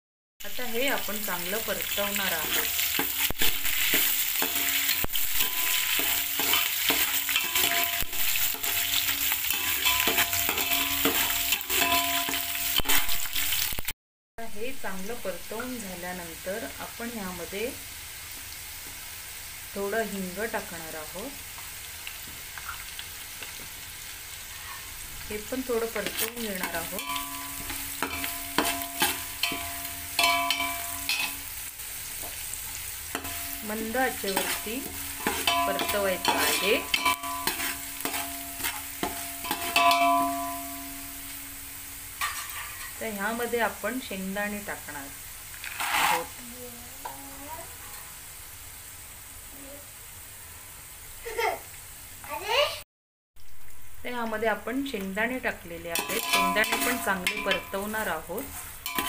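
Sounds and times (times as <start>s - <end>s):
frying in hot oil: 0.4s - 52.8s, 53.4s - 59.0s
spatula scraping metal pan: 2.3s - 13.1s, 26.0s - 31.4s, 33.2s - 40.8s, 42.2s - 43.0s, 45.6s - 46.4s, 55.9s - 59.0s.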